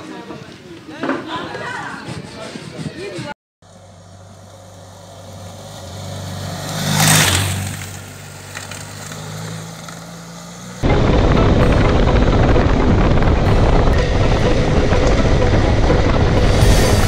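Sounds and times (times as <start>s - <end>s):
vehicle engine running: 3.6s - 17.0s
vehicle passing close by: 3.9s - 17.0s
loud music: 10.8s - 17.0s.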